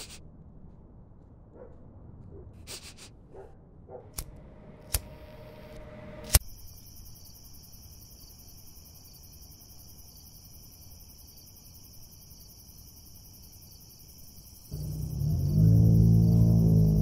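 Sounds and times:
crickets chirping: 6.4s - 17.0s.

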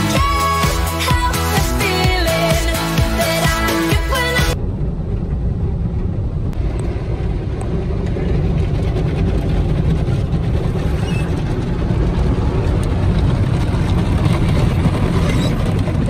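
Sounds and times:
car wash machinery rumble: 4.2s - 16.0s.

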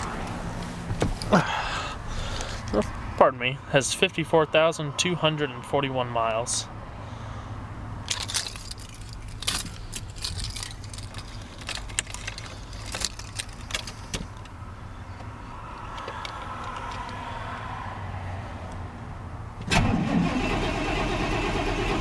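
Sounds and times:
keys jangling and clicking: 8.1s - 14.4s.

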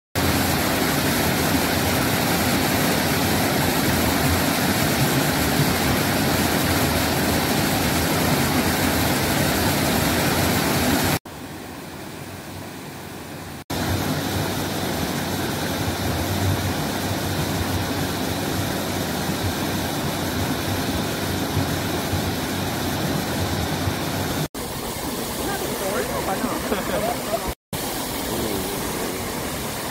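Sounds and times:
waterfall and stream rushing: 0.2s - 29.9s.

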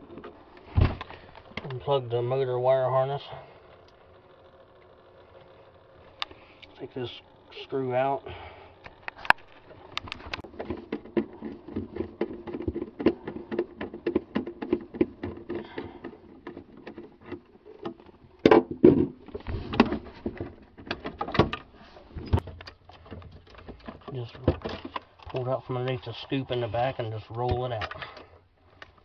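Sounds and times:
low hum: 0.0s - 23.6s
plastic fan shroud rattling: 9.0s - 21.7s.

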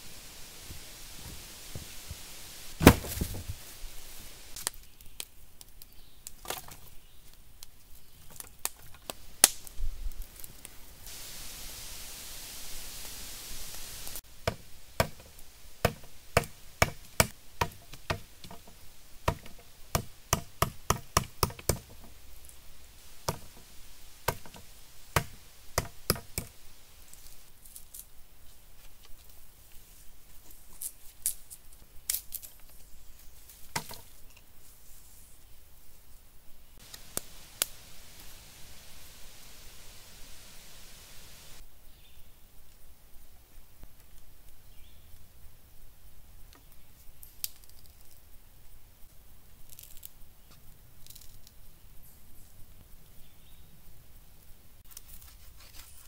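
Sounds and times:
knife chopping into wood: 2.8s - 3.4s.

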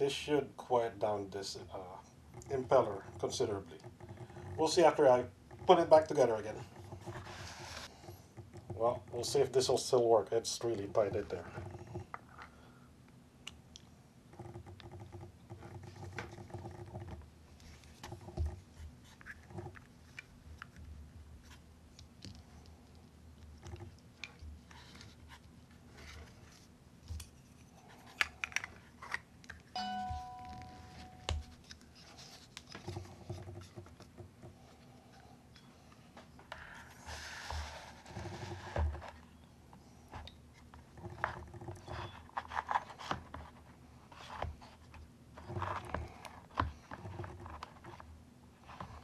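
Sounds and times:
short ringing tone: 29.8s - 31.6s.

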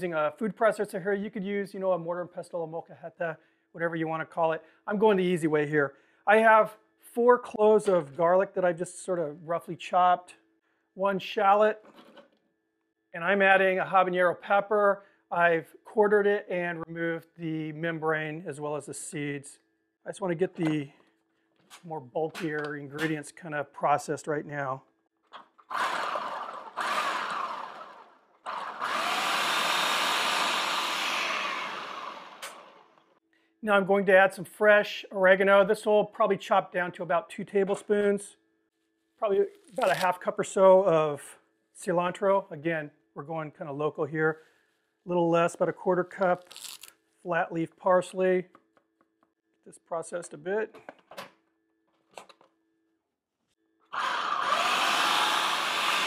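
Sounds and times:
food processor chopping: 25.7s - 32.8s, 54.0s - 56.0s.

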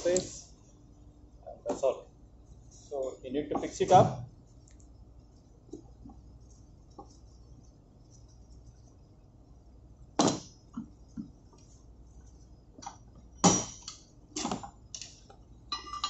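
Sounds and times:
steel parts knocking and clinking: 14.9s - 16.0s.

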